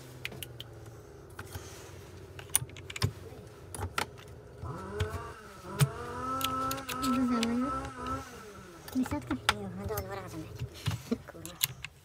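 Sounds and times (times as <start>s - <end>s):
small electric motor whining: 4.2s - 10.7s.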